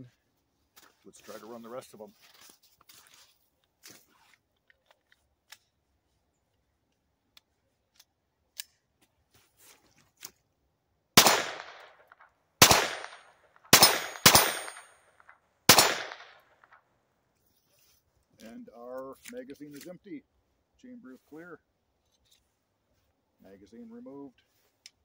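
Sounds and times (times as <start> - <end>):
pistol shots with echo: 11.2 - 12.0, 12.6 - 15.0, 15.7 - 16.5.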